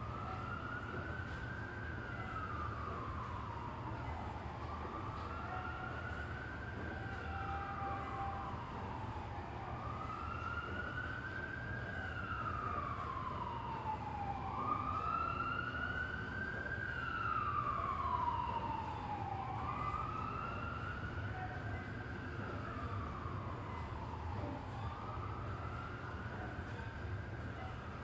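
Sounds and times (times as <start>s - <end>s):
city traffic hum: 0.0s - 28.0s
emergency siren wailing: 0.0s - 28.0s.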